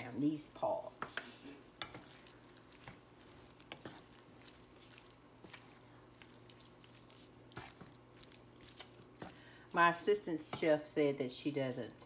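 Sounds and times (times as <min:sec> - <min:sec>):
faint steady hum: 0:00.0 - 0:12.0
soft wet squishing: 0:00.9 - 0:10.2.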